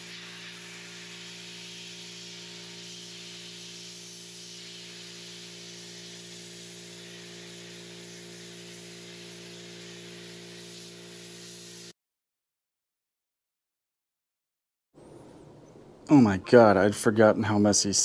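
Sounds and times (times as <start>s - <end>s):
sandblaster hissing: 0.0s - 11.9s.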